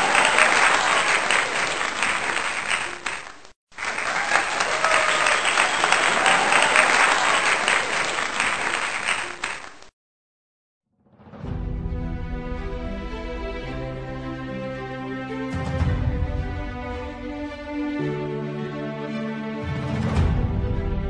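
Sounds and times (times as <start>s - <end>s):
crowd applauding: 0.0s - 9.9s.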